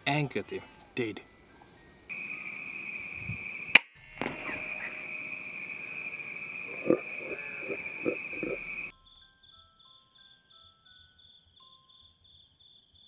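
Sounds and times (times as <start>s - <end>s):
crickets chirring: 0.0s - 13.0s
air rifle shot: 3.7s - 5.0s.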